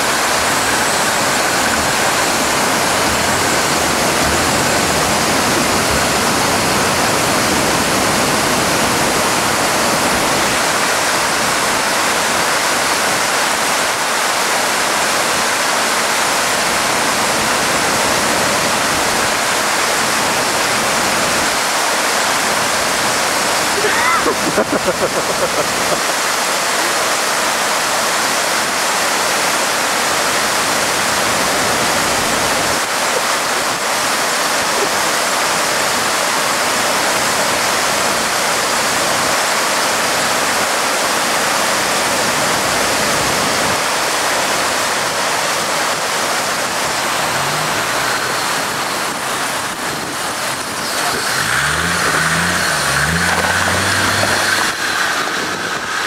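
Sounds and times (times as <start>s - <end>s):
stream rushing over rocks: 0.0s - 56.0s
diesel engine revving: 45.9s - 56.0s.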